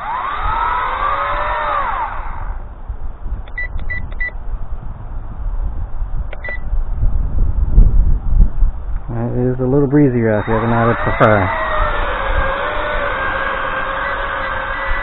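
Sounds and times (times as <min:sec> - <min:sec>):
quadcopter motors whining: 0:00.0 - 0:04.4, 0:09.0 - 0:15.0
wind rumble on microphone: 0:00.0 - 0:15.0
short electronic beeps: 0:03.5 - 0:04.4, 0:06.4 - 0:06.6.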